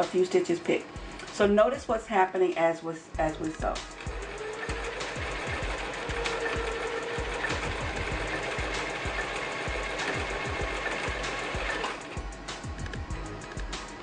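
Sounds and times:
sewing machine stitching: 0:04.0 - 0:12.2.

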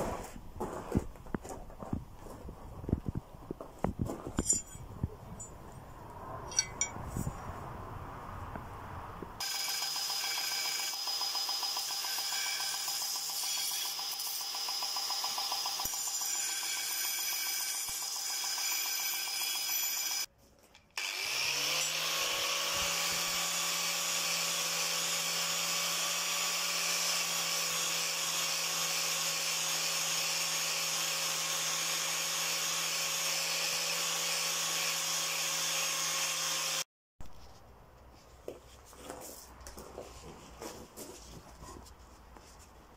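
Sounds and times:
angle grinder grinding metal: 0:09.4 - 0:20.3, 0:21.0 - 0:36.8.

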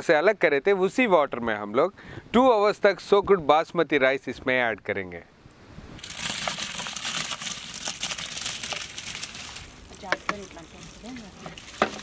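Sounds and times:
wet rice pouring and splashing: 0:06.0 - 0:12.0.

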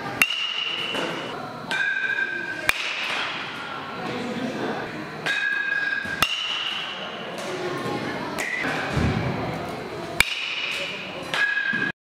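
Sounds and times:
metal bat striking ball: 0:00.2 - 0:03.5, 0:05.2 - 0:07.0, 0:10.2 - 0:11.9.

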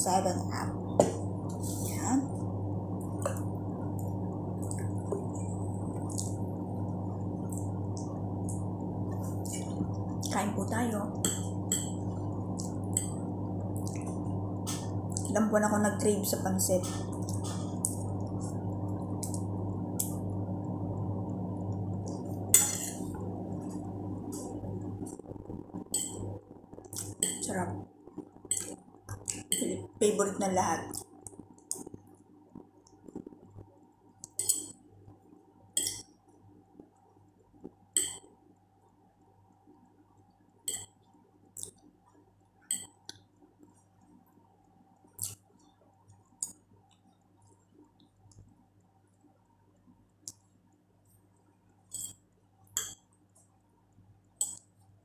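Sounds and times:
steady low hum: 0:00.0 - 0:55.0
fork working through noodles: 0:22.5 - 0:23.1, 0:51.9 - 0:52.2.

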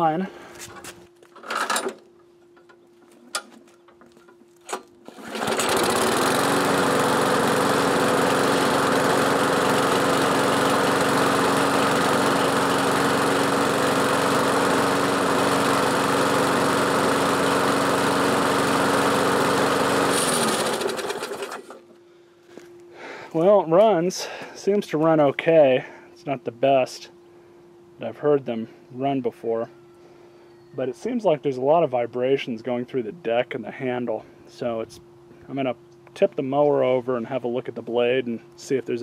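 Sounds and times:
lawn mower engine running: 0:01.3 - 0:02.1, 0:03.1 - 0:22.0.

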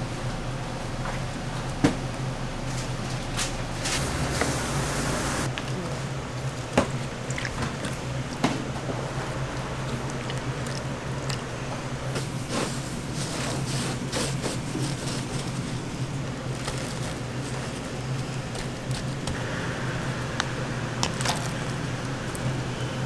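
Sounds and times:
steady low hum: 0:00.0 - 0:23.0
dough squelching: 0:05.4 - 0:19.4
breadcrumbs rustling: 0:09.0 - 0:19.4.

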